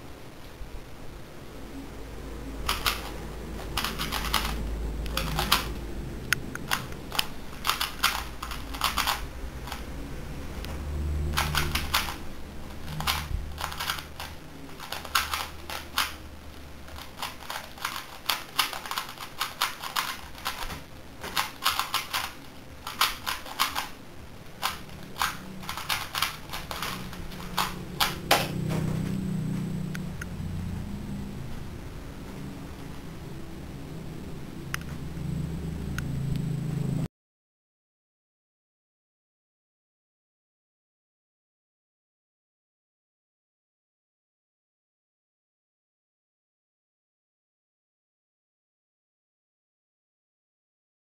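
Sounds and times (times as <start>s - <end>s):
plastic puzzle cube clacking: 2.6s - 9.9s, 11.3s - 28.6s.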